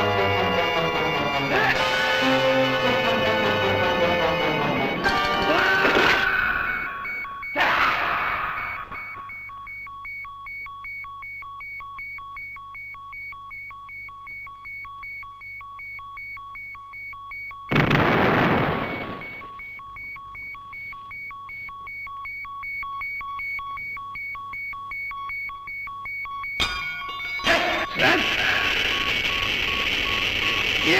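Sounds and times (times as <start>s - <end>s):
rapid electronic beeping: 0.0s - 30.9s
loud explosion crash: 17.7s - 19.4s.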